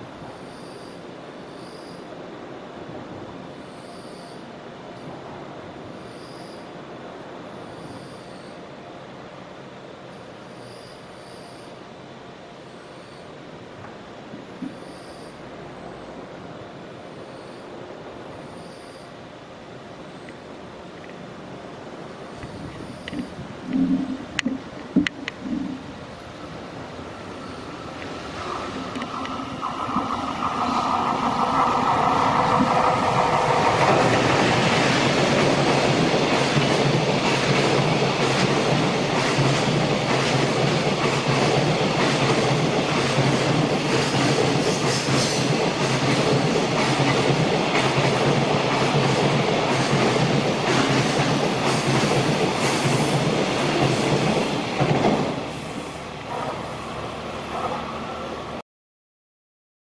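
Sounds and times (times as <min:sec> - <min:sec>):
electric locomotive whine: 0:00.0 - 0:58.6
clickety-clack of rail joints: 0:13.8 - 0:15.0, 0:22.3 - 0:25.9, 0:27.8 - 0:58.6
train wheels rumbling: 0:20.8 - 0:58.6.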